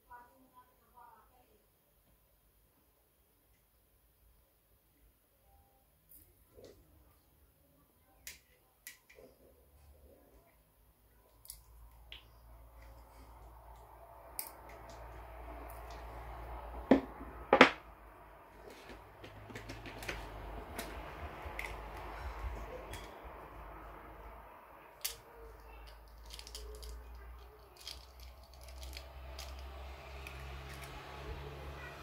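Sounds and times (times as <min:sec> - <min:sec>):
hands handling fishing line: 0:25.9 - 0:27.2, 0:27.8 - 0:30.9.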